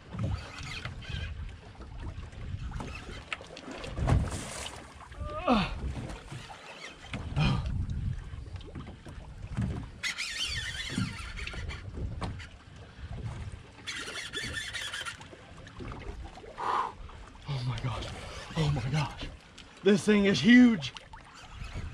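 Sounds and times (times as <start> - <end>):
water washing around boat: 0.0 - 21.9
wind: 0.0 - 21.9
fishing reel whirring: 0.1 - 1.4, 2.5 - 3.4, 6.2 - 7.6, 9.8 - 12.0, 13.8 - 15.4, 21.2 - 21.9.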